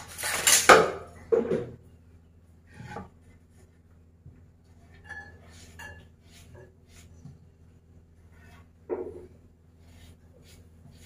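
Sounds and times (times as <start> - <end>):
utensil scrape and rattle: 0.0 - 0.8, 4.9 - 7.3
metal spatula on wooden board: 4.8 - 7.4.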